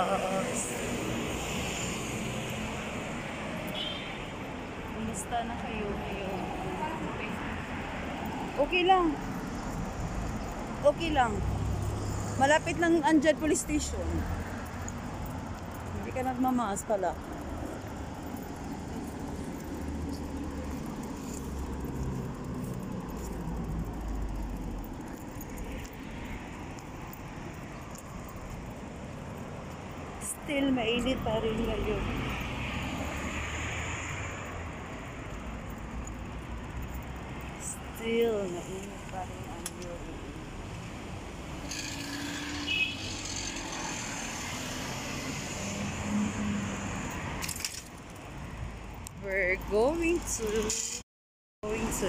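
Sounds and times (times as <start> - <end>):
road traffic noise: 0.0 - 52.0
passing cars rushing: 31.0 - 47.6.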